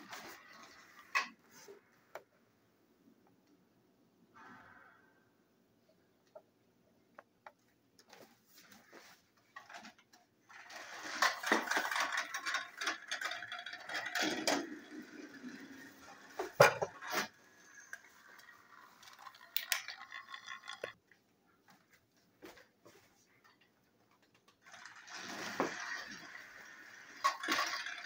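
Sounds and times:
wheels clattering on plastic track: 0:00.0 - 0:01.6, 0:09.5 - 0:21.0, 0:24.2 - 0:28.0
toy train motors whirring: 0:10.5 - 0:21.0, 0:24.6 - 0:28.0.

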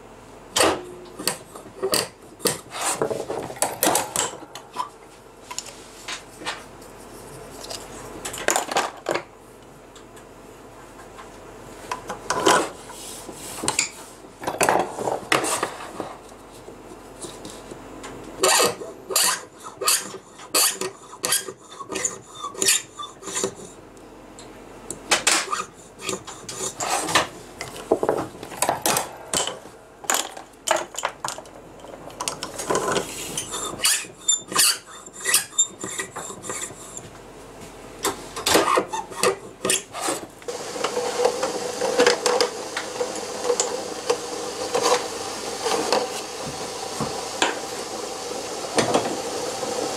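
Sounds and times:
cutting tool scraping plastic on lathe: 0:18.4 - 0:23.8, 0:25.3 - 0:27.3, 0:32.6 - 0:37.0.

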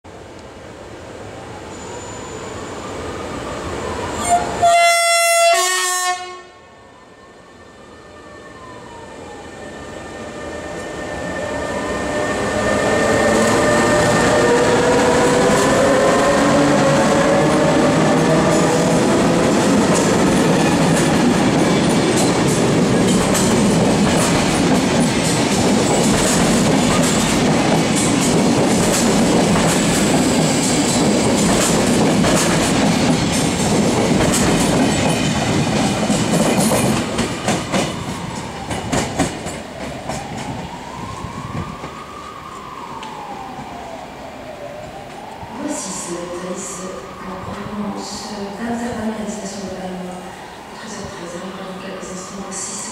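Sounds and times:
electric locomotive whine: 0:00.1 - 0:52.9
two-note locomotive horn: 0:04.2 - 0:06.7
train wheels rumbling on rails: 0:10.3 - 0:43.9.

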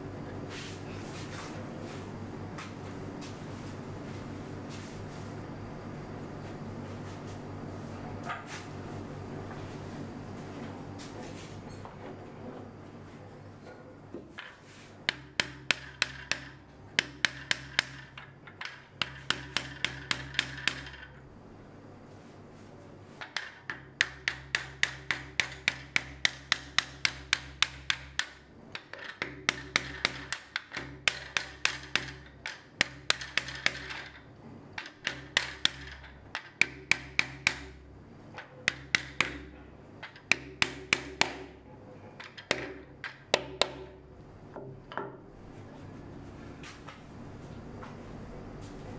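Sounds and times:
hammer tapping wooden block: 0:15.1 - 0:21.1, 0:23.2 - 0:34.2, 0:34.8 - 0:37.8, 0:38.4 - 0:41.6, 0:42.2 - 0:45.2.

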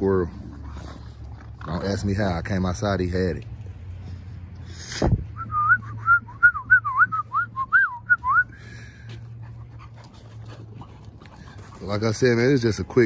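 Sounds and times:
person whistling: 0:05.4 - 0:08.6.

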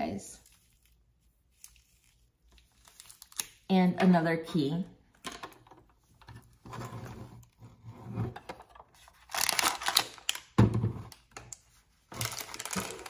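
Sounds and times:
plastic packaging rustling: 0:00.4 - 0:03.7, 0:09.0 - 0:10.6, 0:11.6 - 0:13.0.

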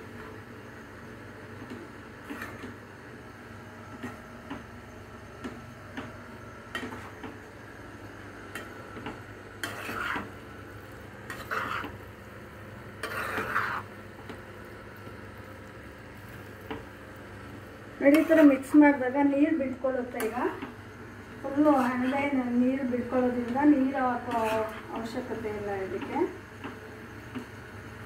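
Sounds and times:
low sizzle of frying: 0:00.0 - 0:28.0
spatula scraping pan: 0:09.6 - 0:10.4, 0:11.2 - 0:12.0, 0:12.9 - 0:14.0, 0:18.0 - 0:18.7, 0:21.6 - 0:22.4, 0:24.1 - 0:25.2.

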